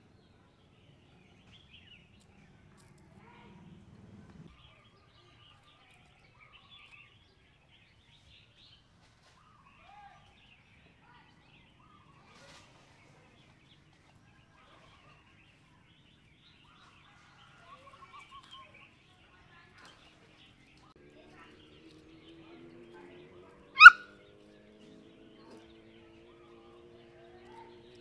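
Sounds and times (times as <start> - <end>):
faint bird chirps: 23.7 - 24.3.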